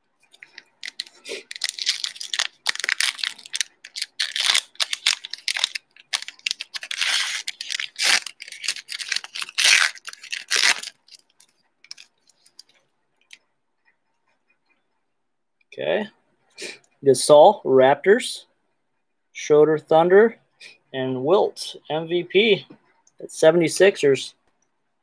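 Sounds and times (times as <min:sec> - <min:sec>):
plastic wrapper tearing and crinkling: 0:00.3 - 0:12.7.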